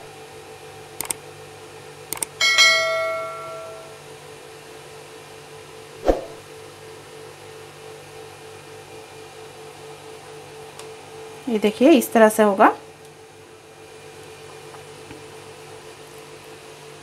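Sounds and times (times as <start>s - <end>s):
short clicks: 1.0s - 1.2s, 2.1s - 2.3s
bell ding: 2.4s - 4.0s.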